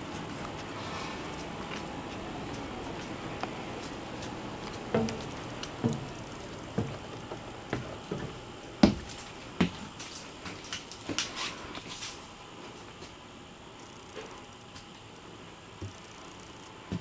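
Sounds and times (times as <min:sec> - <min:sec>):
light footstep clicks and taps: 0:00.0 - 0:11.3
footsteps thudding on steps: 0:01.3 - 0:10.0.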